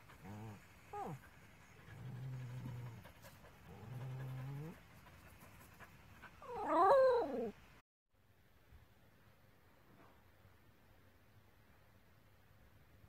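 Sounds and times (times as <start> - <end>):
dog moaning: 0.0 - 4.8, 6.4 - 7.6
dog whining howl: 6.4 - 7.6.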